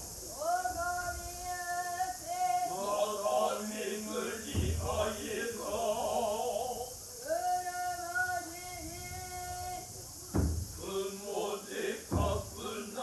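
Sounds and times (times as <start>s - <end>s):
men's chorus chanting: 0.7s - 13.0s
low thud: 4.4s - 5.3s, 10.3s - 10.9s, 12.1s - 12.6s.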